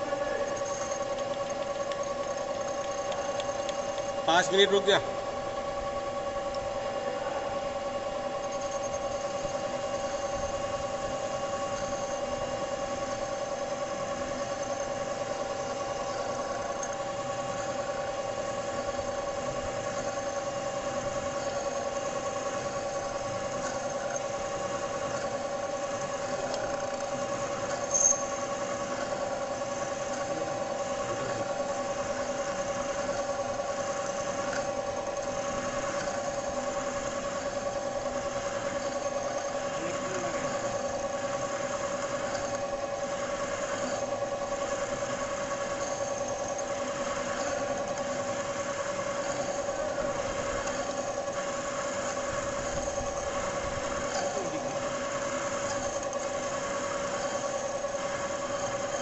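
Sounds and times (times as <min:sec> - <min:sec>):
lathe humming and whining: 0:00.0 - 0:59.0
sharp click: 0:00.7 - 0:04.1.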